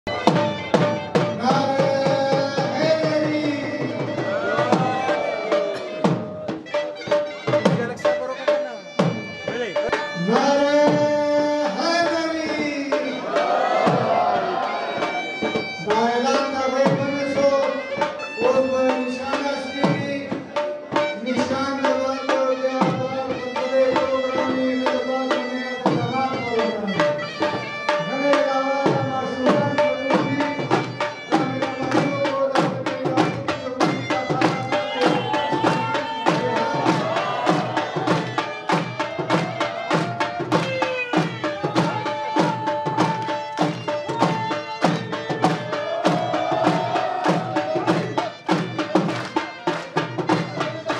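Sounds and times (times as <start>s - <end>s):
drum beaten in steady rhythm: 0.0s - 50.9s.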